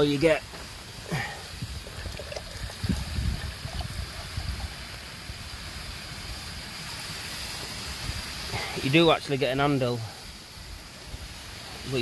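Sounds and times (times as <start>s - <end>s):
water pouring into a pot: 0.0s - 9.0s.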